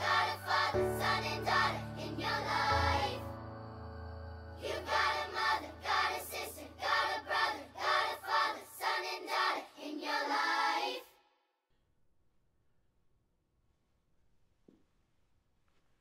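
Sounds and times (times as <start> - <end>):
low sustained tone: 0.0 - 8.2
backing music: 0.0 - 8.4.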